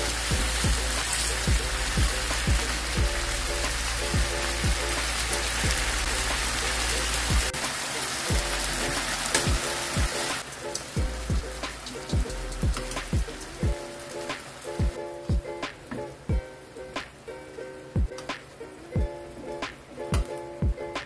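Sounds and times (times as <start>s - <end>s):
music with deep drum beat: 0.0s - 7.6s, 8.3s - 10.4s, 11.0s - 17.1s, 18.0s - 18.2s, 19.0s - 21.0s
fish sizzling in oil: 0.0s - 21.0s.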